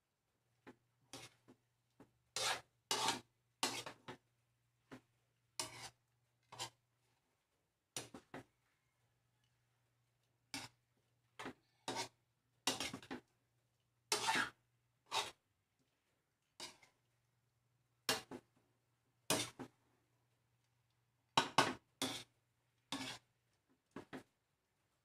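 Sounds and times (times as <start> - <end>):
metal spatula scraping a wok: 1.1 - 1.4, 2.4 - 4.0, 5.6 - 6.8, 10.5 - 10.8, 11.9 - 13.2, 14.1 - 15.4, 16.6 - 16.9, 19.3 - 19.6, 21.6 - 22.3, 22.9 - 23.3.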